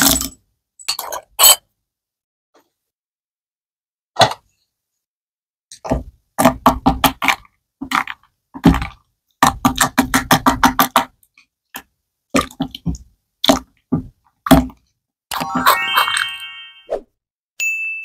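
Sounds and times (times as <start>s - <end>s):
wooden spoon stirring slime: 5.8s - 15.7s.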